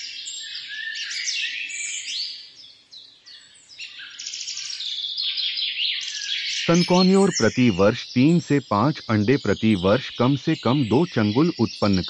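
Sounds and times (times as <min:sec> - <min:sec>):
birds chirping and calling: 0:00.0 - 0:12.0.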